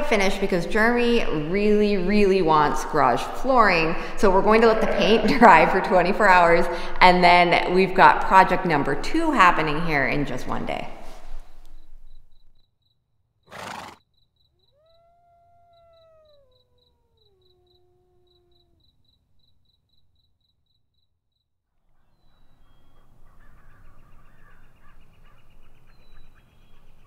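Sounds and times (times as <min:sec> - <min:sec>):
crickets chirping: 0:11.1 - 0:21.4
birds calling: 0:13.5 - 0:18.9, 0:22.0 - 0:27.0
long howl falling in pitch: 0:14.7 - 0:18.9.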